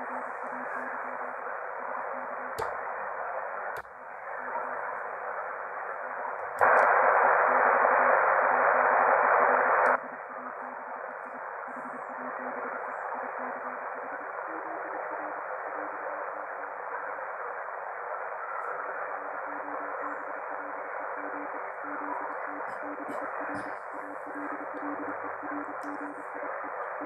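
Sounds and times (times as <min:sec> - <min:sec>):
radio static hiss: 0:00.0 - 0:27.0.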